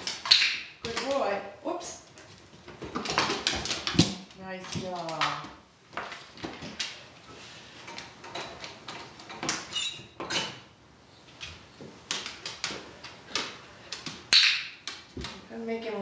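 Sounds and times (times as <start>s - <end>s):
brief squeak: 9.7s - 10.1s.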